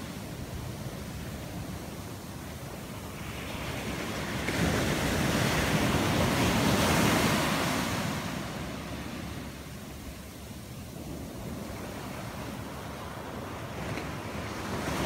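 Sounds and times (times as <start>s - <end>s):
wave breaking on shore: 3.0s - 9.6s.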